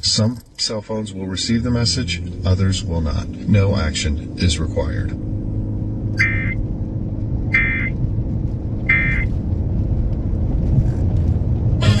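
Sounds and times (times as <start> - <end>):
low car hum: 0.0 - 12.0
alert data tone bursts: 6.2 - 6.6, 7.5 - 7.9, 8.9 - 9.3.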